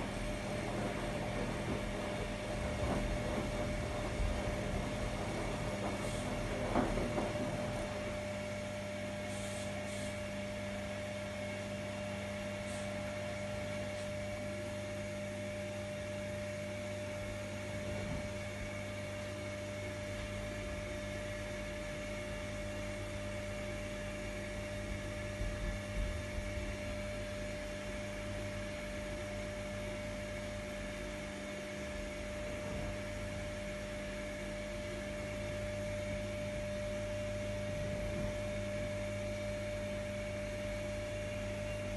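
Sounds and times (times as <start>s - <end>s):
washing machine motor hum: 0.0s - 41.9s.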